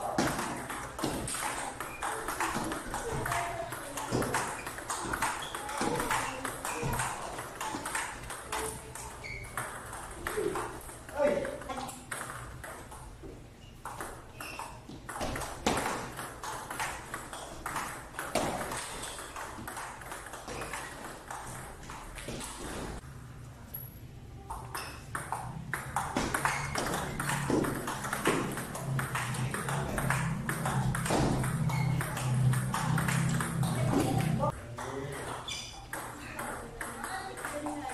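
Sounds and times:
ping pong ball clicking off paddles: 0.2s - 13.2s, 13.8s - 22.8s, 24.5s - 37.9s
ball bouncing on tabletop: 24.5s - 34.4s.

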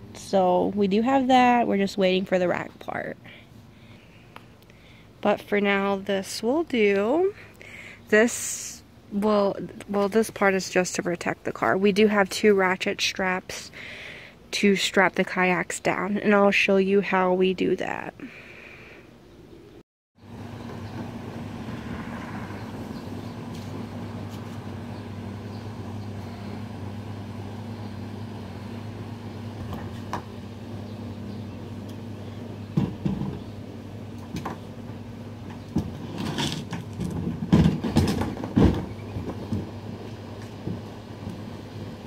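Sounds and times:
low mechanical hum: 0.0s - 42.0s
objects knocking and clunking: 32.7s - 33.5s, 35.4s - 41.5s.

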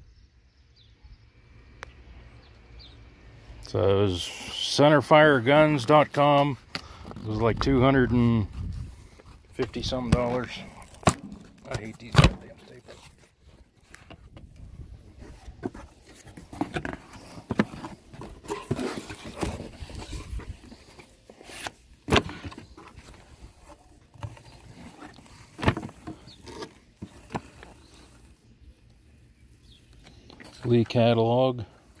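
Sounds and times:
cardboard rustling and scraping: 5.5s - 28.6s.

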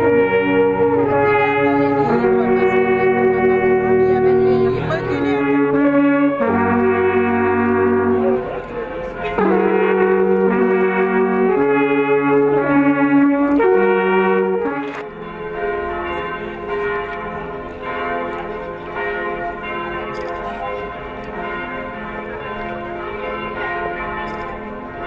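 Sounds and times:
alphorns playing sustained chords: 0.0s - 19.7s
church bells ringing: 0.0s - 25.0s.

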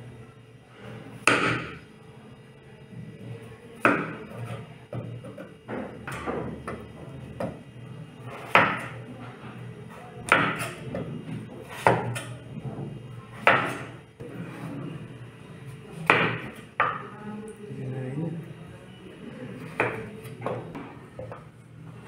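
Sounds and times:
knife cutting potato: 11.6s - 12.3s.

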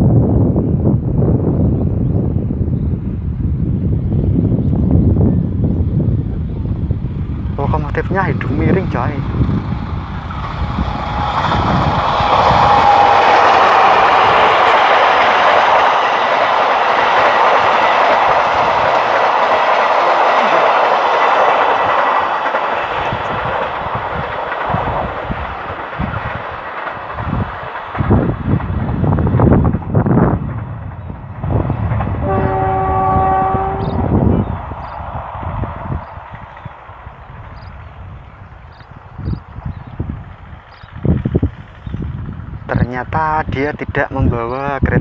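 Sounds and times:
low rumbling gusts: 0.0s - 45.0s
train rumbling and clattering past: 0.0s - 45.0s
train horn chord: 32.2s - 34.1s.

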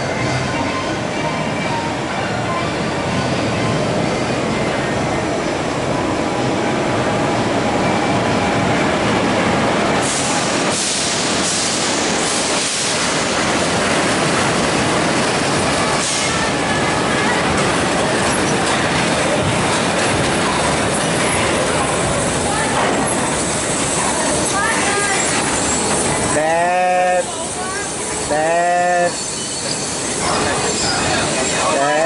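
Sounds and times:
rail vehicle rumbling on track: 0.0s - 32.0s
wheel squeal: 24.9s - 26.2s, 29.1s - 31.9s.

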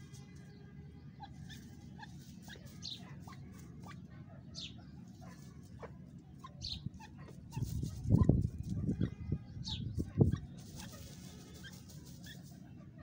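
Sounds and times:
birds clucking softly: 0.0s - 13.0s
low background rumble: 0.0s - 13.0s.

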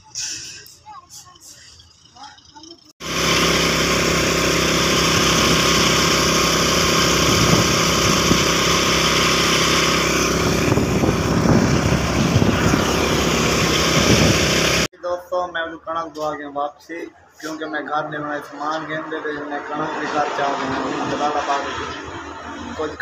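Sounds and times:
motorcycle engine running: 1.1s - 14.9s
wind rush on microphone: 7.2s - 8.6s, 10.2s - 14.8s.

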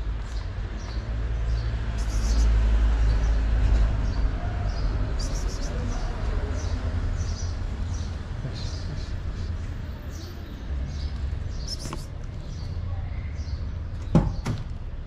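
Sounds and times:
low street rumble: 0.0s - 15.0s
faint bird chirps: 2.0s - 2.6s, 5.2s - 6.1s, 11.6s - 13.6s.

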